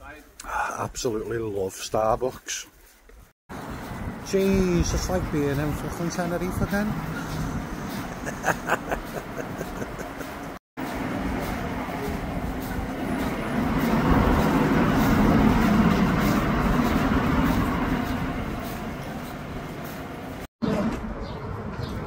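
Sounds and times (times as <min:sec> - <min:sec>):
road vehicle passing: 0:03.5 - 0:22.0.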